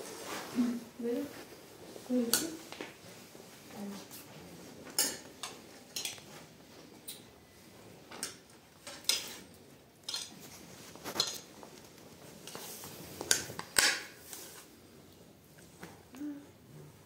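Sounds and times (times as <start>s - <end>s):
metal spoons clinking on plates: 4.9s - 6.2s, 10.0s - 10.4s.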